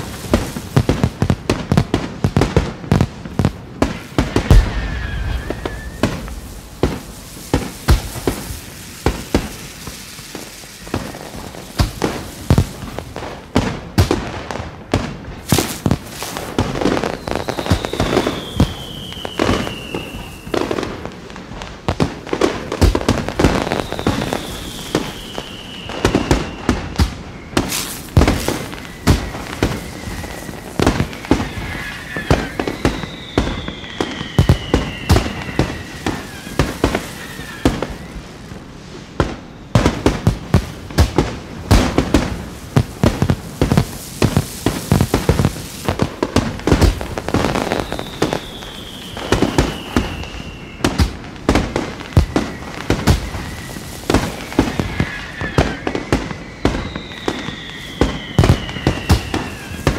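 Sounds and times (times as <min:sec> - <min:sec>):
fireworks bursts and bangs: 0:00.0 - 0:59.9
whistling firework: 0:00.0 - 0:59.9.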